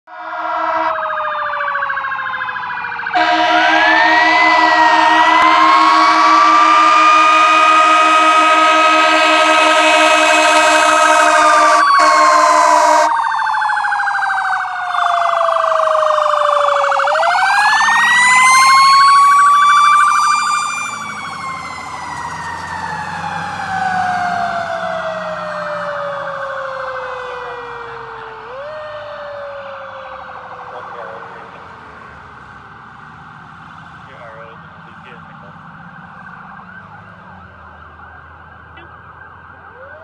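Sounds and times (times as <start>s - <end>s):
fire engine siren wailing: 0.1s - 40.0s
truck engine rumbling: 2.8s - 40.0s
steady horn chord: 3.2s - 13.1s.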